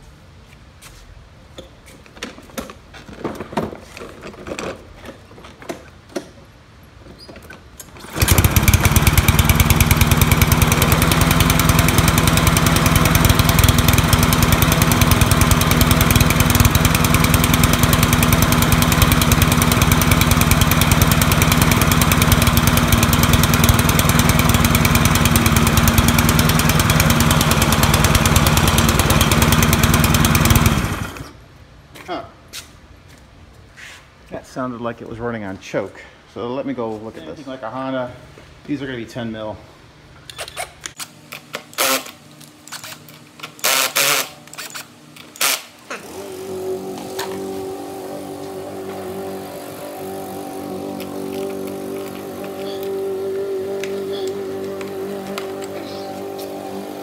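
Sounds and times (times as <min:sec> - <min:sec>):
lawn mower engine running: 0:07.8 - 0:31.4, 0:41.7 - 0:57.0.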